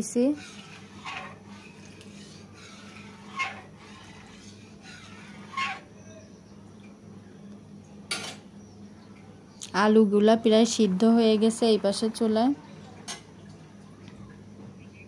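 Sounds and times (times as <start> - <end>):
metal masher mashing lentils: 0.2 - 5.8.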